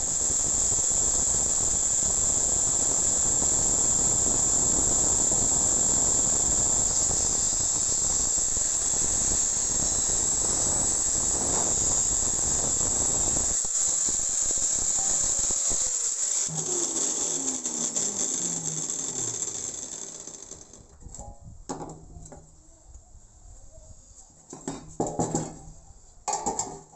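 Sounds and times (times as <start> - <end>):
angle grinder cutting steel: 0.0 - 20.9
motor winding down: 0.0 - 20.9.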